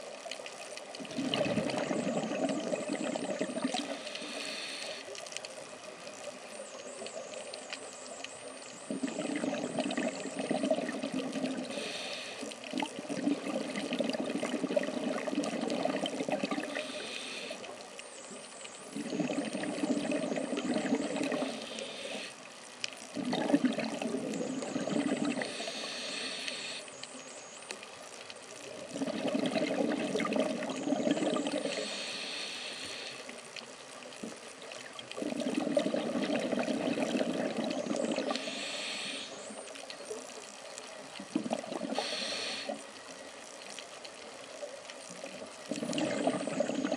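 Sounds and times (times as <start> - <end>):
exhaled bubbles rushing: 1.0 - 4.1, 8.8 - 11.8, 12.7 - 17.0, 18.9 - 21.8, 23.1 - 25.7, 28.9 - 31.9, 35.2 - 38.4, 41.2 - 42.8, 45.7 - 46.9
regulator hissing inhale: 3.7 - 5.2, 11.3 - 12.7, 16.6 - 17.8, 21.2 - 22.5, 24.9 - 27.2, 31.6 - 33.4, 38.1 - 39.6, 41.8 - 43.1.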